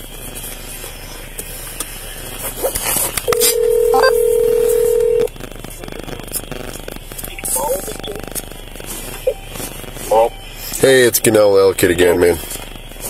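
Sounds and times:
short high beeps: 3.3s - 5.3s, 7.3s - 8.3s
telephone ringback tone: 3.3s - 5.3s.

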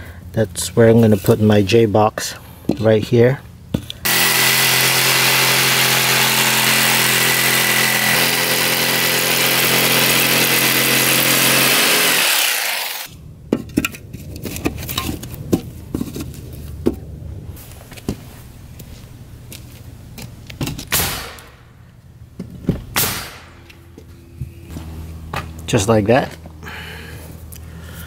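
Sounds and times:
jigsaw cutting board: 4.1s - 13.1s.

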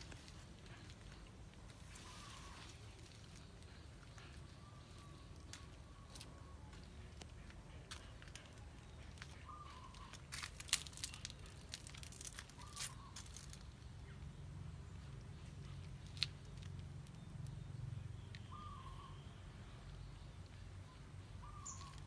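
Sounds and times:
dry leaves crackling on paving: 0.0s - 14.2s, 15.1s - 17.6s.

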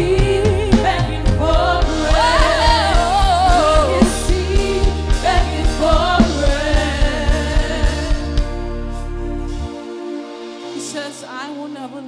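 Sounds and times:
women singing gospel song: 0.0s - 8.5s
instrumental backing with beat: 0.0s - 11.7s.

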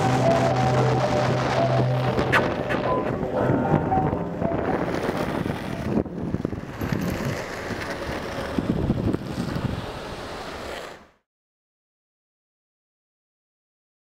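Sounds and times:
wind buffeting microphone: 0.0s - 10.4s
wheels rolling on asphalt: 0.0s - 11.2s.

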